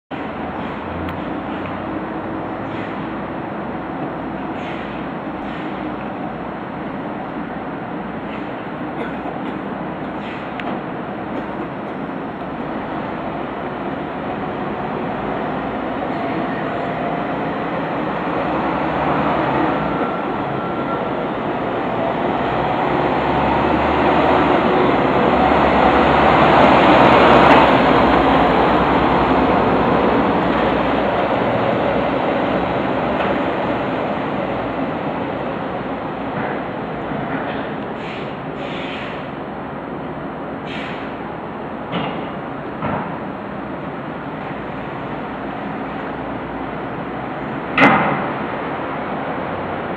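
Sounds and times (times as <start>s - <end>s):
diesel engine rumble: 0.1s - 49.9s.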